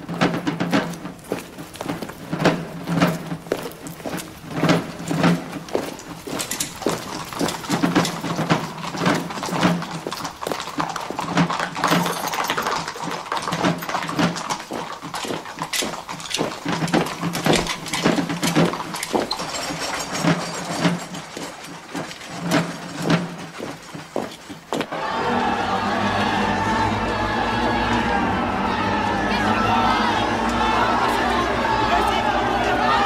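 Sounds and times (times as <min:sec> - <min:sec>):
marching footsteps: 0:00.0 - 0:25.0
horse hooves on cobblestones: 0:00.0 - 0:33.0.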